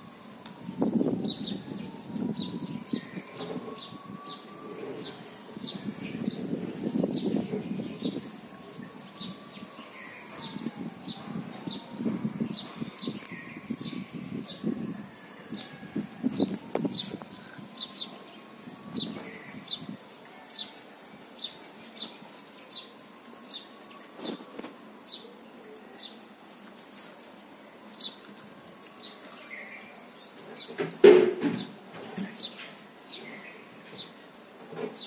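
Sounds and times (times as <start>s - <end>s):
bird chirping: 0.3s - 26.2s
soft rustling: 26.4s - 30.1s.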